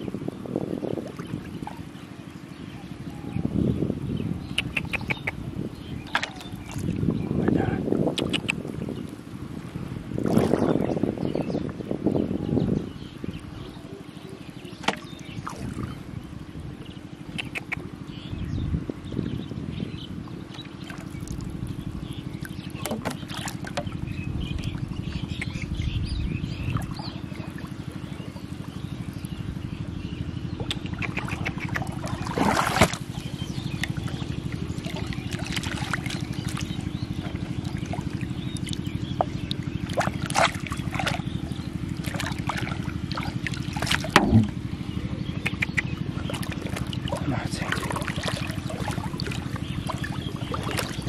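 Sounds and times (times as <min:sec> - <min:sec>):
small engine droning: 0:00.0 - 0:51.0
water trickling: 0:20.6 - 0:25.5, 0:30.6 - 0:44.7, 0:46.2 - 0:51.0.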